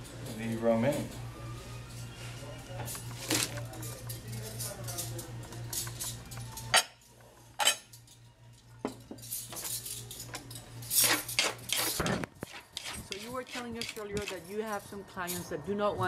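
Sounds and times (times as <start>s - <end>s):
spoon and fork clinking in wooden bowl: 12.8s - 14.6s.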